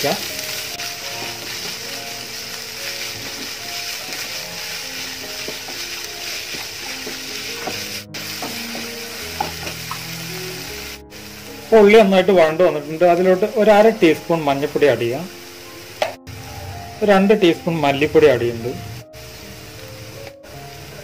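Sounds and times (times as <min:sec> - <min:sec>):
light background music: 0:00.0 - 0:21.0
onions sizzling in hot oil: 0:00.0 - 0:21.0
wooden spatula scraping pan: 0:00.2 - 0:10.1.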